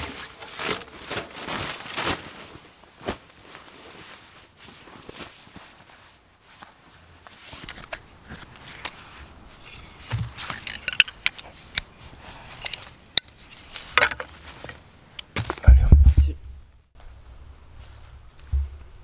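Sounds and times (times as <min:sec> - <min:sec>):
cord and fabric rustling: 0:00.0 - 0:15.6
tools thumping on leaves: 0:10.1 - 0:11.4, 0:13.2 - 0:16.3.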